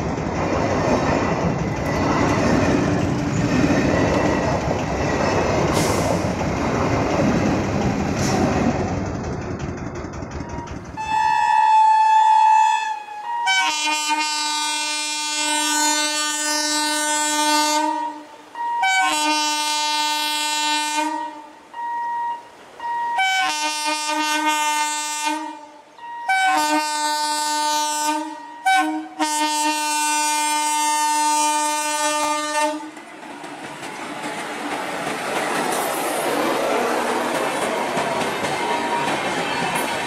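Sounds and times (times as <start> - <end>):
wheels clattering on rails: 0.0 - 11.6, 32.8 - 40.0
train coaches rushing past: 0.0 - 12.6, 32.5 - 40.0
train horn blasts: 10.5 - 33.0.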